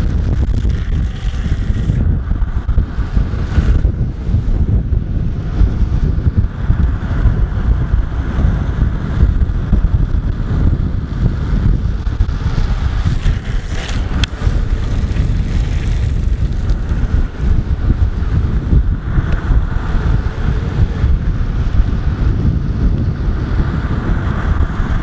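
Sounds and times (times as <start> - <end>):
wheels rolling on asphalt: 0.0 - 25.0
wind buffeting microphone: 0.0 - 25.0.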